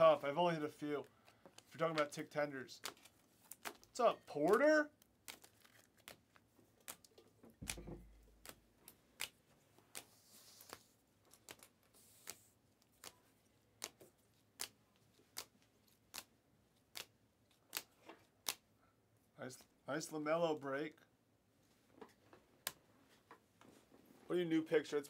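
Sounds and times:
soft sliding rustle: 10.0s - 10.9s.

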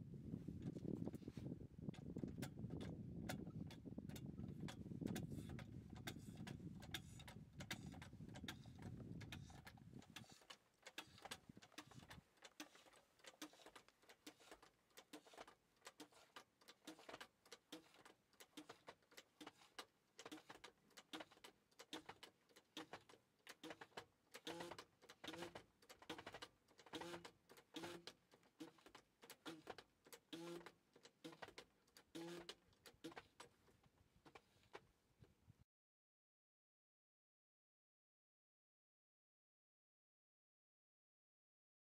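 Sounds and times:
hand pump clicking: 2.0s - 33.6s
pump squeaking: 4.2s - 18.0s, 28.6s - 33.5s.

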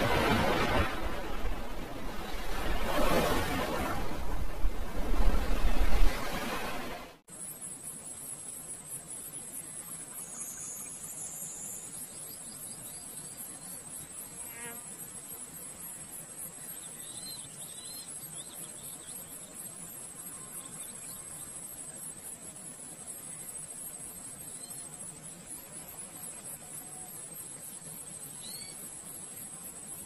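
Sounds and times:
high-pitched insect chorus: 7.3s - 30.0s.

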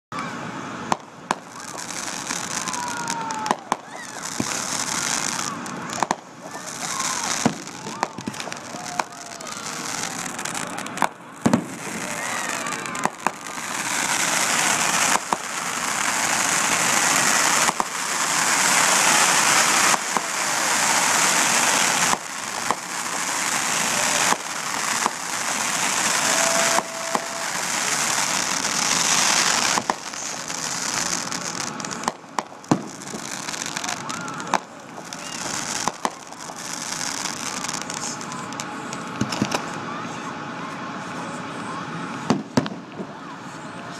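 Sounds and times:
fireworks bangs: 0.2s - 43.9s
fireworks crackling: 0.2s - 43.9s.

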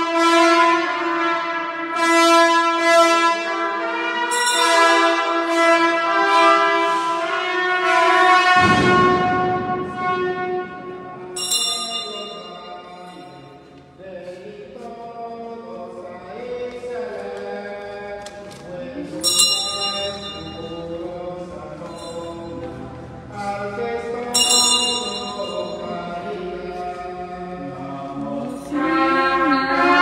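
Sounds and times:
small bell ringing: 11.4s - 13.6s, 19.2s - 21.1s, 21.8s - 22.6s, 24.3s - 26.2s
voices singing a chant-like hymn: 14.0s - 30.0s.

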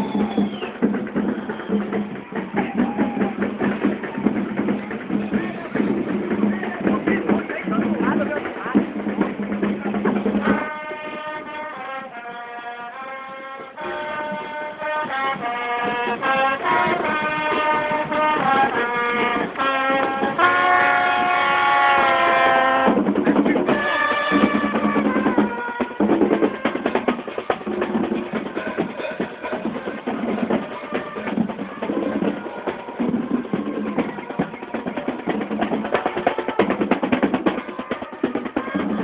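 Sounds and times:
snare and bass drums: 0.0s - 12.2s, 13.6s - 39.0s
brass playing a melody: 10.0s - 39.0s.

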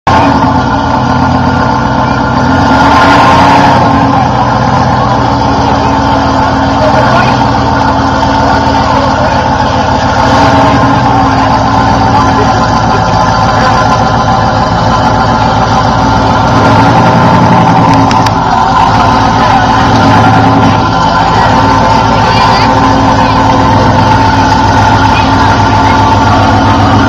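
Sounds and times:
buggy engine under throttle: 0.0s - 27.0s.

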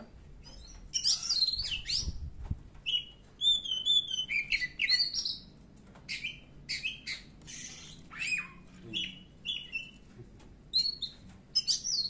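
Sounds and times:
bird singing whistled notes: 0.4s - 2.2s, 2.8s - 5.4s, 10.7s - 12.0s.

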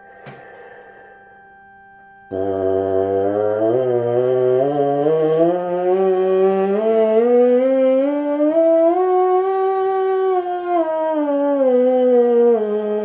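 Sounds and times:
trombone mouthpiece buzzing scale: 2.2s - 10.5s.

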